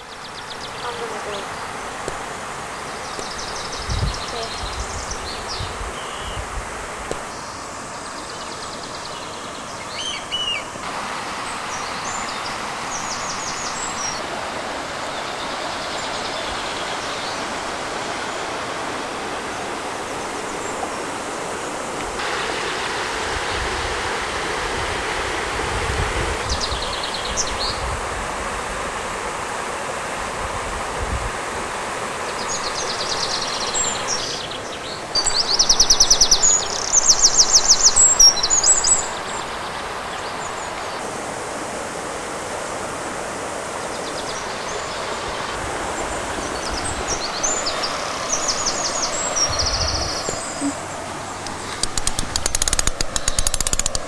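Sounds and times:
birds chirping: 0:00.0 - 0:06.5, 0:07.2 - 0:14.3, 0:32.2 - 0:41.1, 0:43.7 - 0:54.0
river water rushing: 0:00.0 - 0:54.0.

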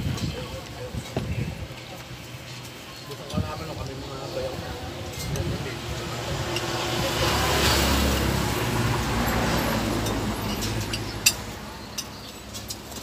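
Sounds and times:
vehicle passing by: 0:03.9 - 0:13.0.

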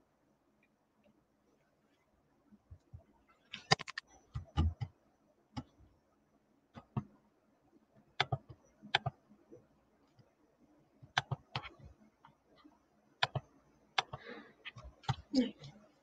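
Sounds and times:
computer mouse clicks: 0:03.5 - 0:05.0, 0:08.2 - 0:09.2, 0:11.0 - 0:15.3.

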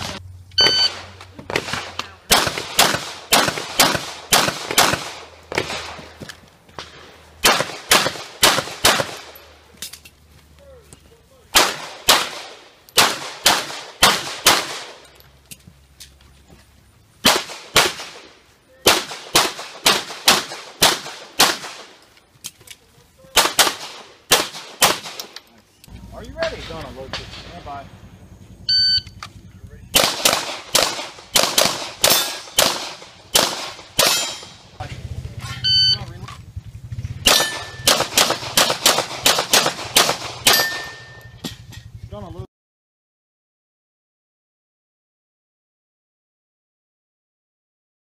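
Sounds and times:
rapid pistol shots: 0:00.9 - 0:06.1, 0:07.4 - 0:09.4, 0:11.6 - 0:15.0, 0:17.2 - 0:22.0, 0:23.3 - 0:25.4, 0:29.9 - 0:34.6, 0:37.2 - 0:41.2.

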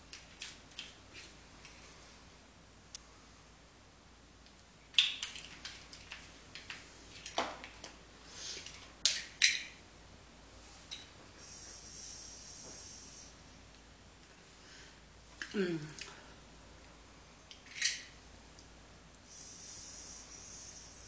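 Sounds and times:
small clicks and taps of handled parts: 0:04.4 - 0:08.0
soft hiss of air drawn through: 0:10.5 - 0:13.7, 0:19.1 - 0:21.0.

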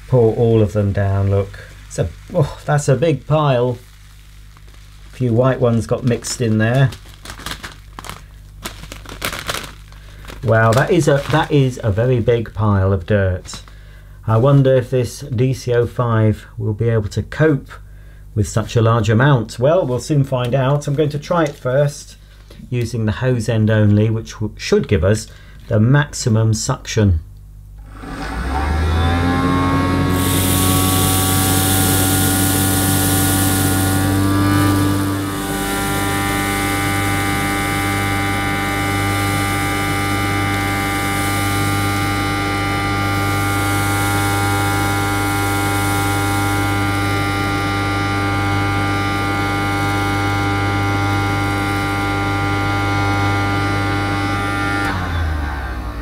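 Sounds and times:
toy vacuum motor buzzing: 0:27.8 - 0:56.0.

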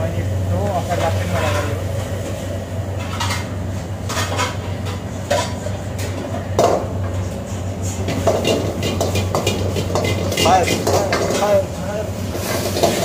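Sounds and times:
low burner hum: 0:00.0 - 0:13.0
wok and ladle clinking: 0:08.1 - 0:11.6, 0:12.4 - 0:13.0.

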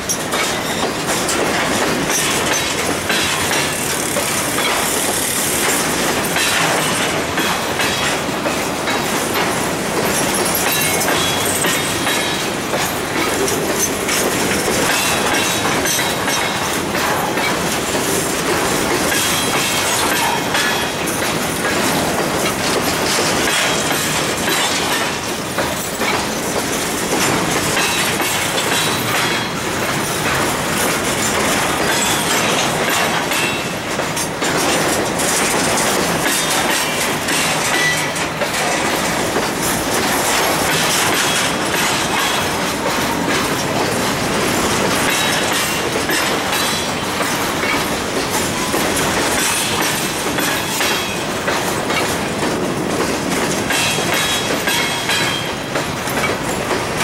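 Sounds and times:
train wheels rumbling on rails: 0:00.0 - 0:57.0
wheels clacking over rail joints: 0:00.0 - 0:57.0.

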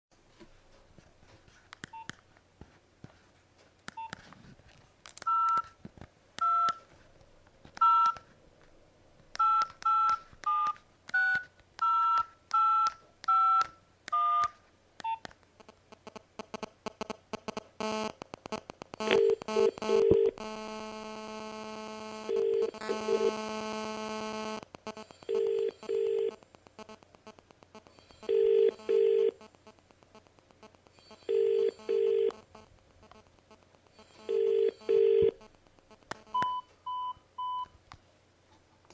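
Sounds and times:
two-tone keypad beeps: 0:05.3 - 0:05.7, 0:07.8 - 0:08.2, 0:09.4 - 0:15.2, 0:22.3 - 0:26.2, 0:36.3 - 0:37.7
radio interference ticking buzz: 0:15.6 - 0:34.5
double-pulse ringing tone: 0:27.9 - 0:29.1, 0:31.0 - 0:32.3.

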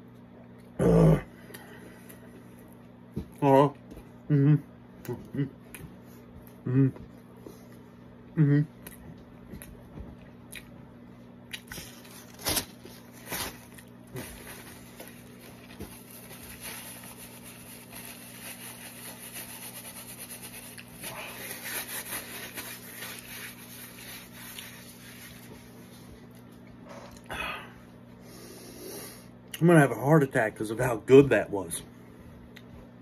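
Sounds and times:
paper napkin rubbing face: 0:12.3 - 0:26.0.

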